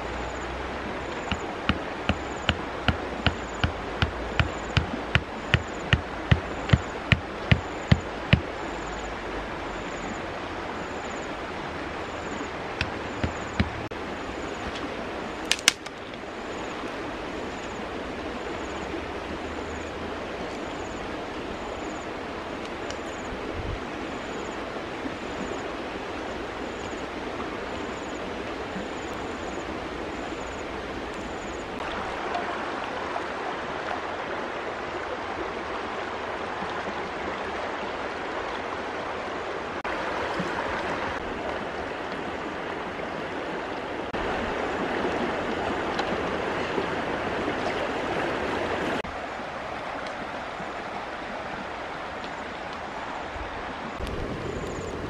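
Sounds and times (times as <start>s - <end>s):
fast-flowing stream: 0.0s - 55.0s
sharp clicks: 15.5s - 15.9s.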